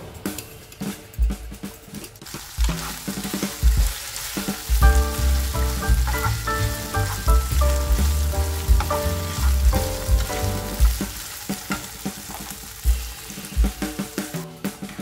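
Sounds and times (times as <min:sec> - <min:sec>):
wooden spatula stirring: 0:02.2 - 0:13.6
meat sizzling in oil: 0:02.2 - 0:14.3
background music with bass: 0:02.7 - 0:12.1.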